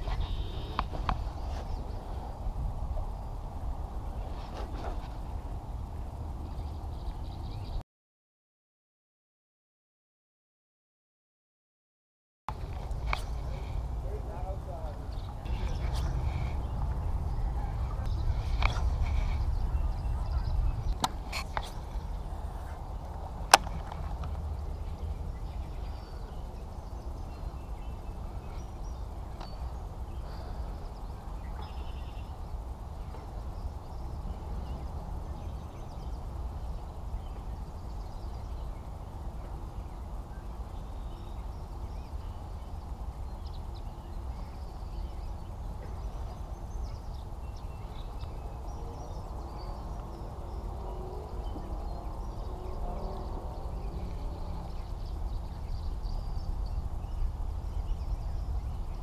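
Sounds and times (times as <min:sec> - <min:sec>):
wind buffeting microphone: 0:00.0 - 0:07.8, 0:12.5 - 0:59.0.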